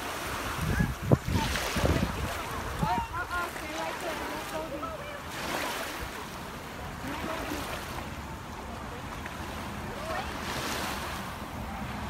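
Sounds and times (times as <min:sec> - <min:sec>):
wind rumble on microphone: 0:00.0 - 0:03.7
lake waves lapping at shore: 0:00.0 - 0:12.0.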